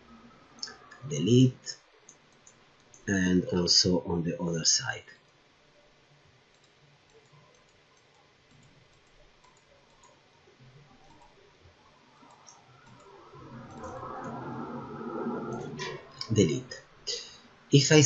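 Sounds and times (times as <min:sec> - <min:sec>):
computer mouse clicks: 0:02.1 - 0:03.0, 0:06.5 - 0:10.2, 0:11.0 - 0:11.4, 0:12.2 - 0:14.4.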